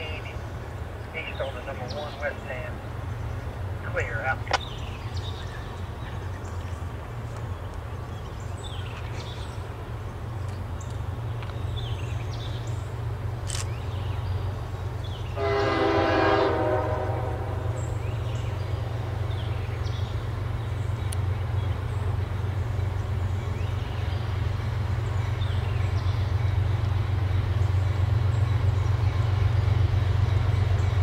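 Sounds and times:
steady low rumble: 0:00.0 - 0:15.4
train horn blast: 0:15.4 - 0:17.8.

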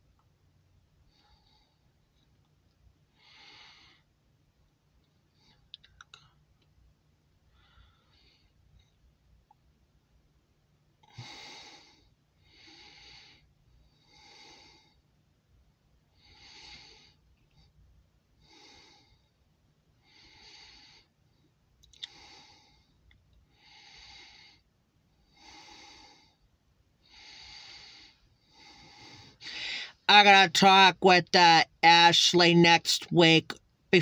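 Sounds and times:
faint breathing: 0:01.0 - 0:02.3, 0:03.1 - 0:04.2, 0:07.4 - 0:09.0, 0:11.0 - 0:15.2, 0:16.1 - 0:30.1.

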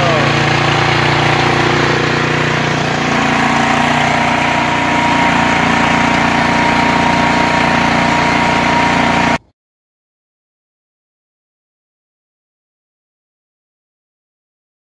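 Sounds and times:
snow thrower engine running: 0:00.0 - 0:09.4.

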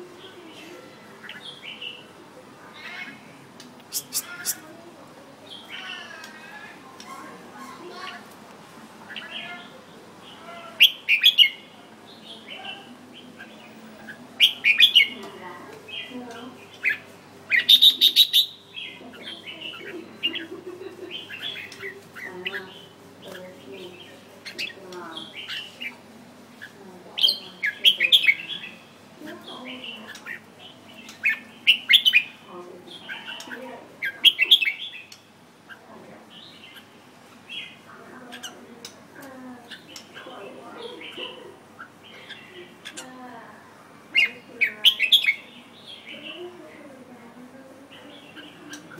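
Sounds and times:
bird chirping song: 0:09.1 - 0:26.0, 0:26.6 - 0:39.0, 0:44.1 - 0:46.6.

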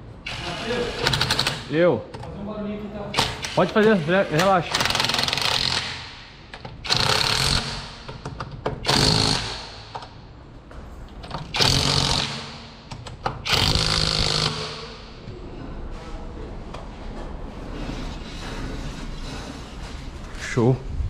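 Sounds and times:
impact wrench bursts: 0:00.3 - 0:01.7, 0:03.1 - 0:10.2, 0:11.4 - 0:15.2.

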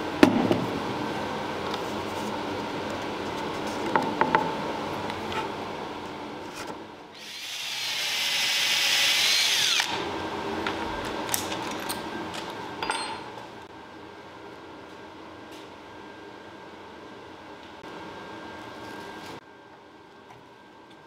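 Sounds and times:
cordless drill boring into wood: 0:07.2 - 0:10.0.

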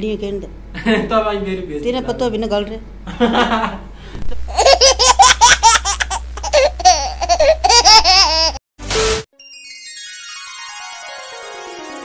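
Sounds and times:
steady low hum: 0:00.0 - 0:08.4
high-pitched laughter: 0:04.5 - 0:08.6.

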